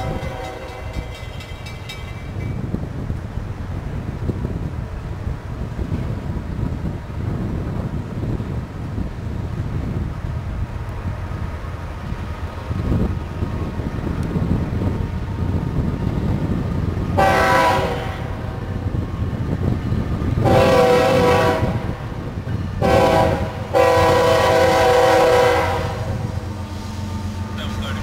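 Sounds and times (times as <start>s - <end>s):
locomotive air horn blasts: 0.0s - 0.9s, 17.2s - 18.6s, 20.4s - 22.1s, 22.8s - 27.5s
locomotive engine rumble: 0.0s - 28.0s.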